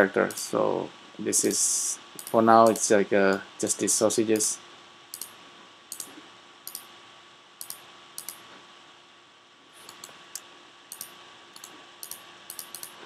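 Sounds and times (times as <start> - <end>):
faint steady hum: 0.0 - 13.0
computer mouse button clicking: 7.6 - 8.4, 10.9 - 12.9.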